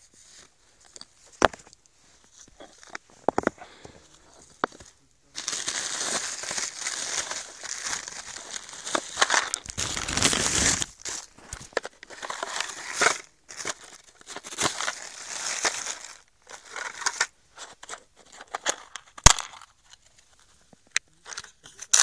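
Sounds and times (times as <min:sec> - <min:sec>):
plastic bag crinkling: 0:05.4 - 0:17.3.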